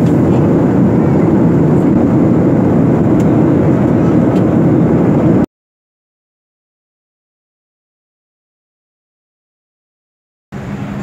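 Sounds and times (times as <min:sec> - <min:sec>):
airliner cabin engine rush: 0:00.0 - 0:05.5, 0:10.5 - 0:11.0.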